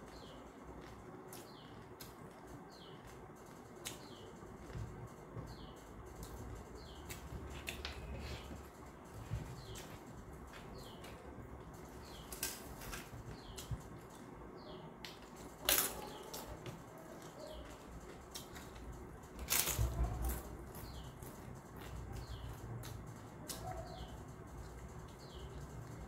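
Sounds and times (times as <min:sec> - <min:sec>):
chewing food: 0:00.0 - 0:05.6, 0:15.1 - 0:26.0.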